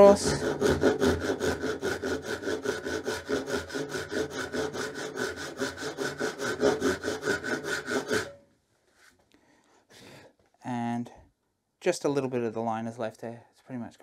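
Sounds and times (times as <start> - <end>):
hand saw cutting wood: 0.0 - 8.4.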